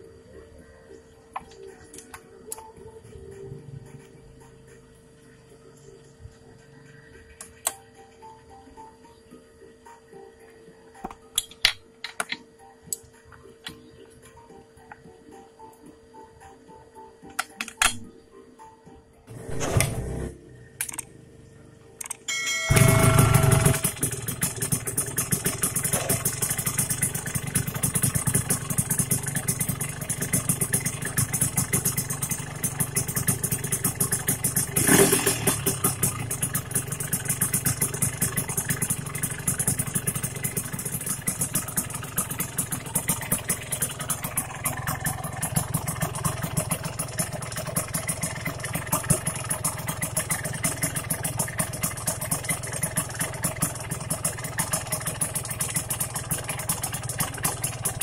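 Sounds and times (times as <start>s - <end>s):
motorcycle engine idling: 22.6s - 58.0s.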